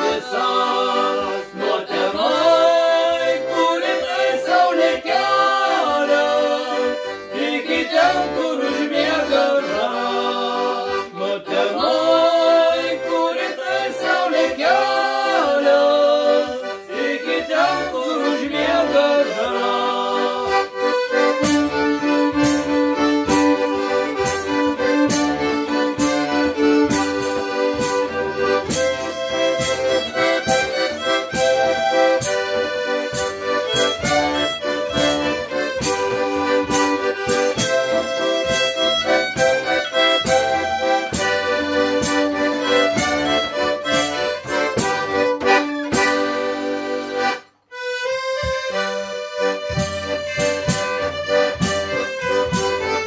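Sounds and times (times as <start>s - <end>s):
men singing in unison: 0.0s - 20.5s
bowed fiddle: 0.0s - 53.0s
concertina: 0.0s - 53.0s.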